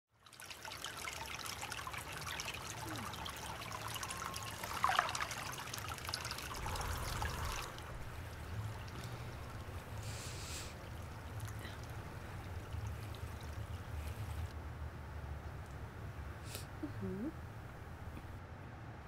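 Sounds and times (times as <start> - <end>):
bath water trickling and splashing: 0.1 - 14.6
loud water splash: 0.4 - 14.3.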